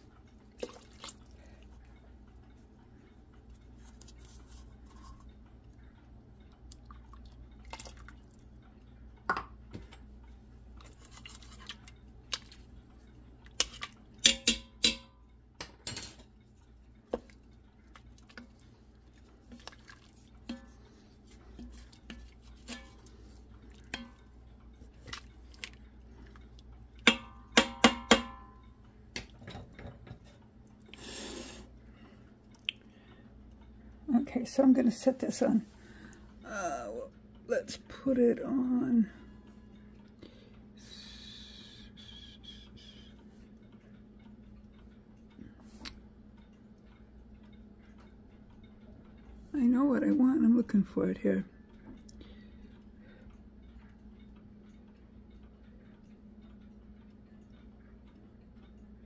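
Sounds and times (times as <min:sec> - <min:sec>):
spoon stirring in metal pot: 0:10.8 - 0:15.2, 0:17.0 - 0:30.4.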